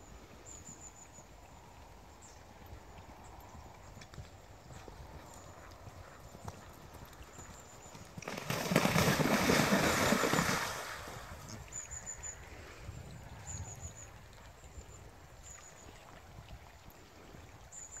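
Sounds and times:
horse splashing in water: 6.6s - 12.2s.

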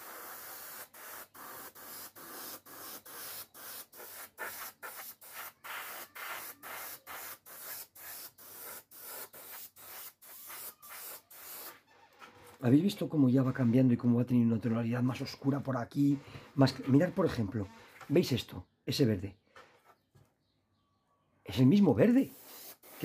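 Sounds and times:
airbrush spraying in bursts: 0.0s - 11.8s, 22.1s - 23.0s.

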